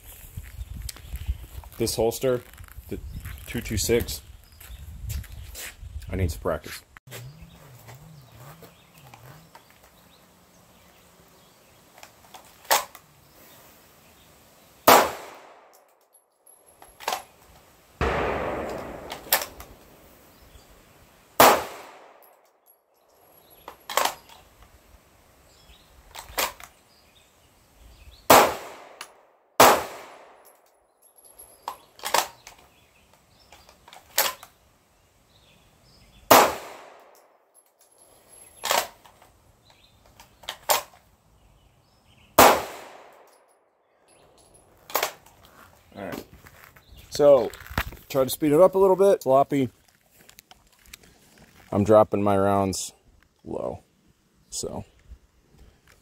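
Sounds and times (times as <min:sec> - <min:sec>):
pistol shots with echo: 0:14.8 - 0:15.7, 0:18.0 - 0:20.2, 0:21.4 - 0:22.2, 0:28.3 - 0:29.0, 0:29.6 - 0:30.4, 0:36.3 - 0:37.1, 0:42.4 - 0:43.2.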